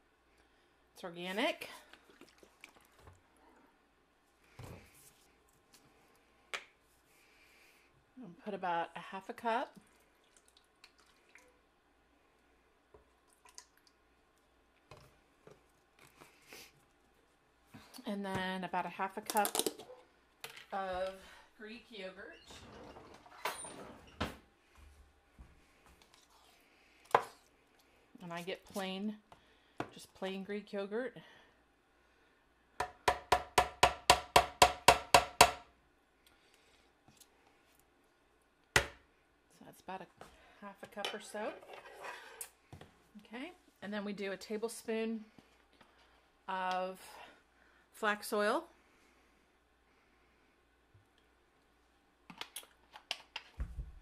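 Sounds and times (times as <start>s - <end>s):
liquid dripping: 9.8s - 11.6s, 13.2s - 14.0s.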